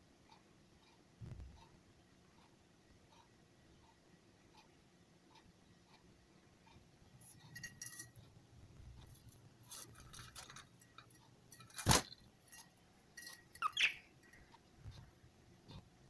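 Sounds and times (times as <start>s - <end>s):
light clicks and clinks in cage: 7.2s - 8.4s, 9.0s - 15.1s
budgerigar chirp: 13.6s - 14.1s.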